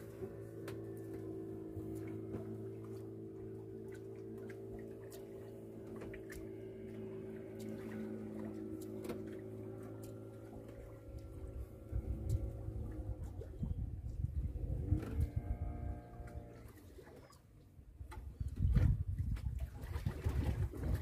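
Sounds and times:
uneven low rumble: 0:00.0 - 0:16.7
boat engine running: 0:00.0 - 0:21.0.

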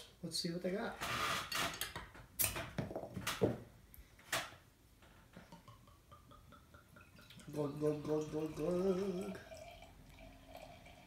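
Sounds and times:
beer pouring into glass: 0:05.5 - 0:11.0.

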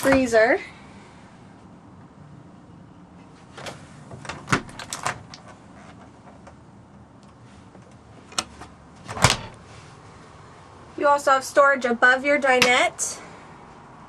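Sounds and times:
refrigerator door clicks and knocks: 0:09.1 - 0:09.5.

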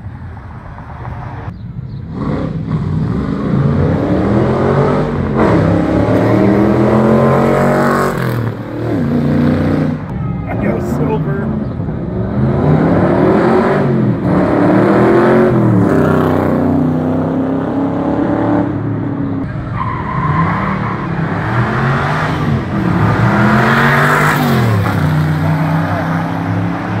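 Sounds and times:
car engines accelerating hard: 0:00.0 - 0:27.0.

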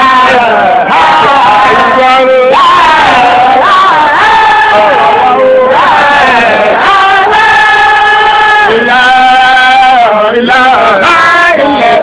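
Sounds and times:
man chanting: 0:00.0 - 0:03.4, 0:08.7 - 0:12.0.

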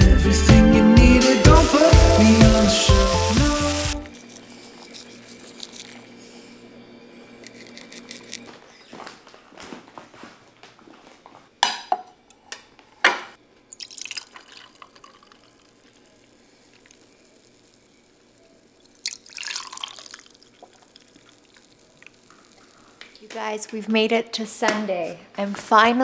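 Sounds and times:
juice pouring into glass: 0:13.7 - 0:23.0.

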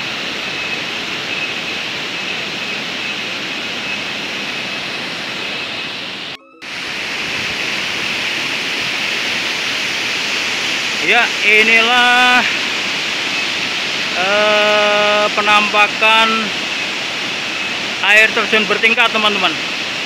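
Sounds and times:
waterfall pouring into pool: 0:08.4 - 0:12.8, 0:14.1 - 0:16.6, 0:17.8 - 0:20.0.

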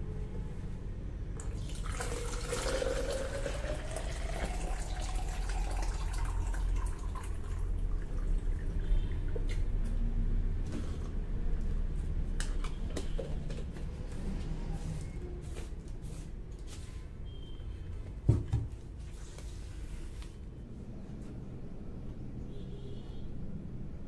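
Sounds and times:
water pouring into bottle: 0:01.4 - 0:08.8.

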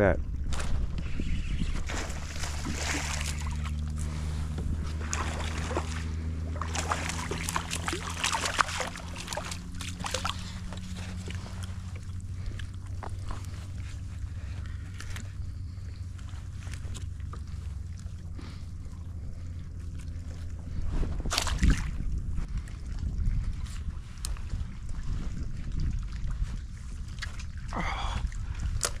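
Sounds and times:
steady low hum: 0:00.0 - 0:29.0
fish splashing at the surface: 0:01.8 - 0:03.9, 0:05.0 - 0:11.4.

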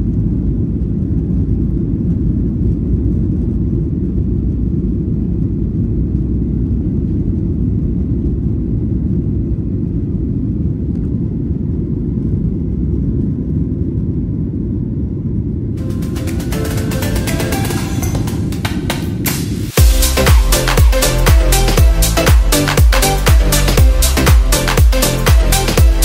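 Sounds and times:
jet engines rumbling: 0:00.0 - 0:26.0
rushing air: 0:15.8 - 0:26.0.

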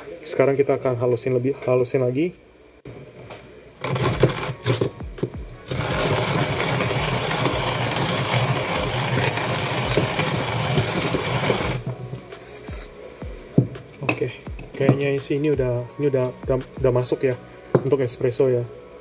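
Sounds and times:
hand grinder crushing coffee beans: 0:03.9 - 0:12.9.

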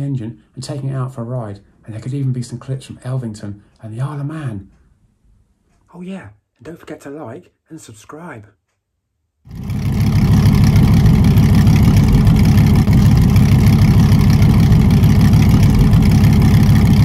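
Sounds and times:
motorcycle engine running steadily: 0:09.5 - 0:17.0.

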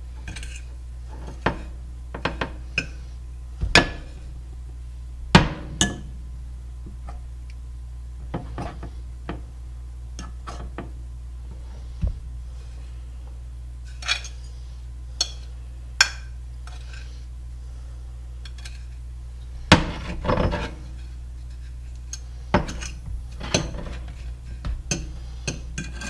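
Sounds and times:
steady low hum: 0:00.0 - 0:26.0
dishes clattering: 0:05.4 - 0:06.1, 0:22.6 - 0:26.0.

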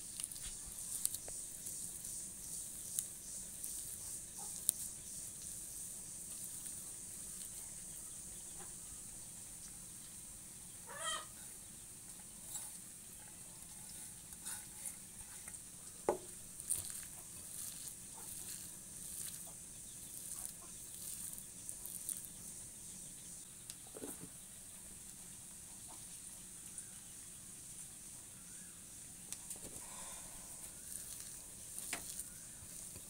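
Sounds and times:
hand squishing mashed potato: 0:00.0 - 0:07.8, 0:14.3 - 0:22.4, 0:30.7 - 0:33.0
faint steady hiss: 0:00.0 - 0:33.0
short animal calls: 0:10.8 - 0:11.4.

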